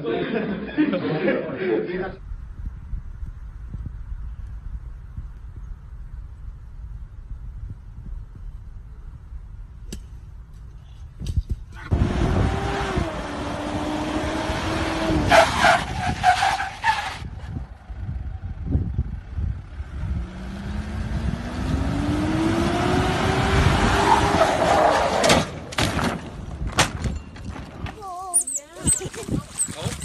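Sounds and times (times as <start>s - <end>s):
rushing road noise: 11.7s - 28.0s.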